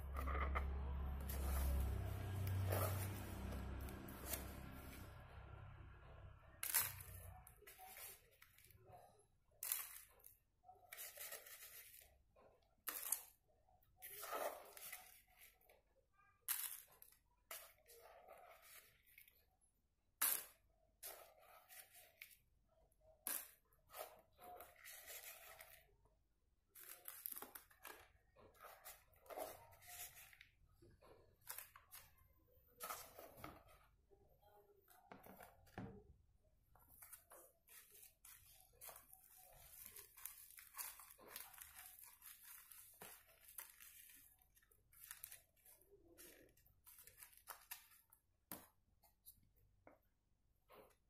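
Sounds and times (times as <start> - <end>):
spoon scraping plastic bowl: 0.0 - 5.2, 14.0 - 15.7, 20.2 - 22.4, 23.3 - 25.9, 26.8 - 30.6.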